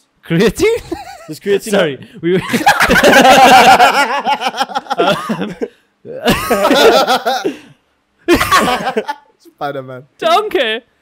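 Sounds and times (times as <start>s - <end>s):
people laughing loudly: 2.4s - 7.7s, 8.3s - 9.3s.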